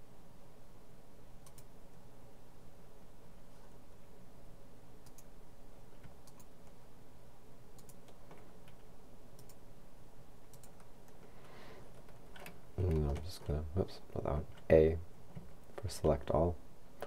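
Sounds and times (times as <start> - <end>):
steady low hum: 0.0 - 17.0
mouse and keyboard clicks: 1.4 - 1.7, 5.0 - 5.3, 6.0 - 6.8, 7.8 - 9.6, 10.5 - 11.2.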